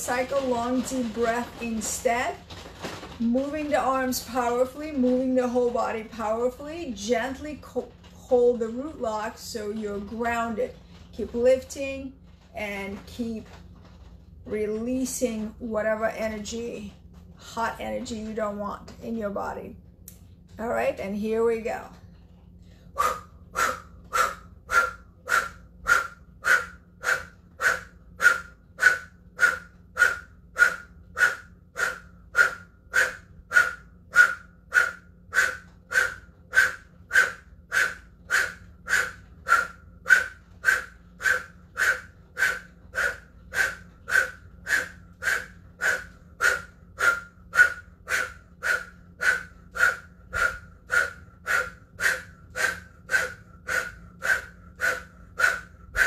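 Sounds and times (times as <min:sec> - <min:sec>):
forceful rhythmic breaths: 0:21.7 - 0:56.0.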